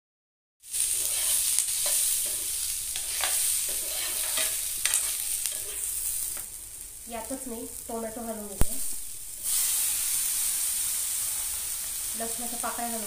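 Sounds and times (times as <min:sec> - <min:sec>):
onions sizzling in oil: 0:00.6 - 0:13.0
spatula scraping pan: 0:00.7 - 0:06.4.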